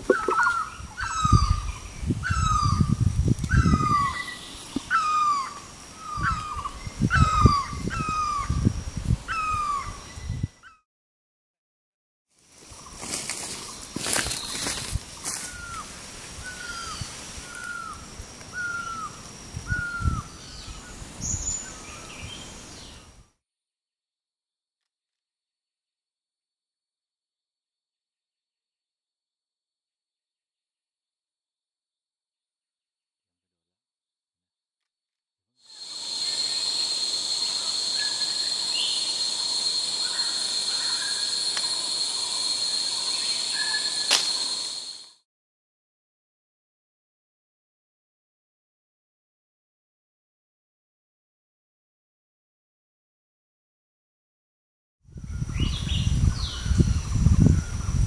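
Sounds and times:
insects hissing: 0.0s - 10.5s, 12.4s - 23.2s, 35.7s - 45.1s
insects droning: 0.0s - 10.6s, 12.4s - 23.3s, 35.7s - 45.2s.

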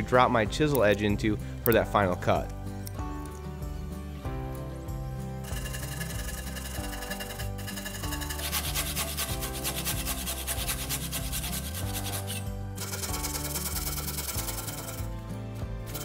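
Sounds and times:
background music: 0.0s - 16.0s
handsaw rasping through wood: 5.6s - 15.1s.

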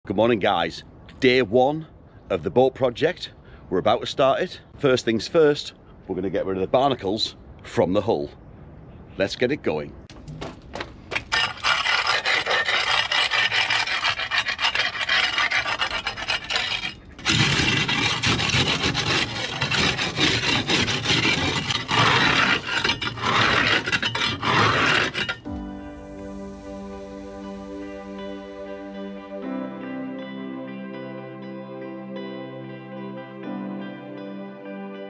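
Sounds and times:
scraper grating barnacles off hull: 11.1s - 25.5s
music: 25.1s - 35.0s.

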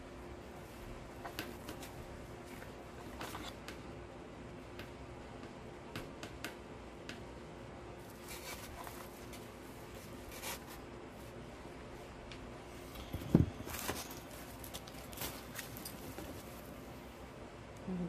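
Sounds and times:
artificial greenery rustling: 8.0s - 17.2s.

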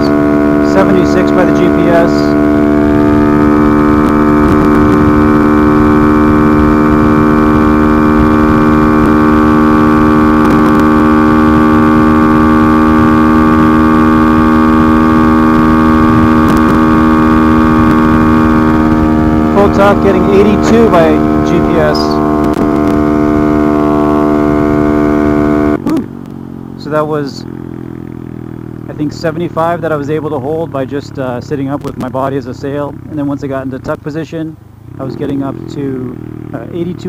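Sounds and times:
motorcycle engine at full throttle: 0.0s - 37.0s.

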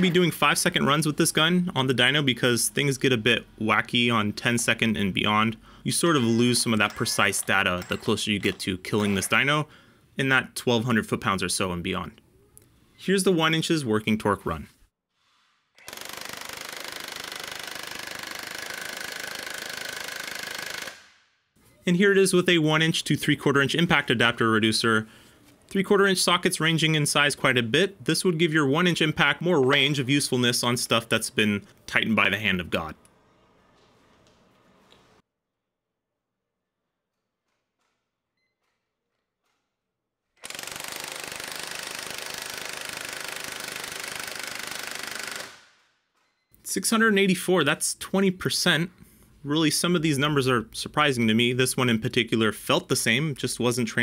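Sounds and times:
impact wrench hammering: 6.2s - 9.3s, 40.4s - 45.6s.

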